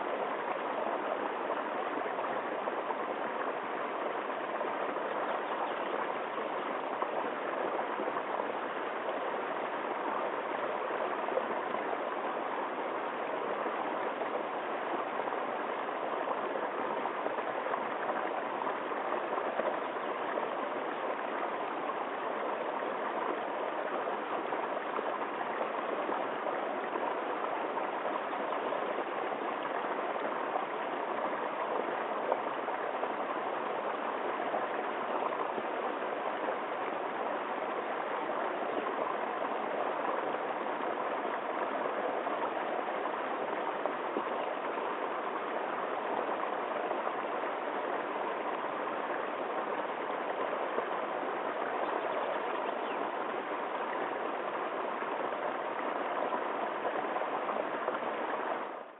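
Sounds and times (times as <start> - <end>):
brook running over cascade: 0.0 - 58.9.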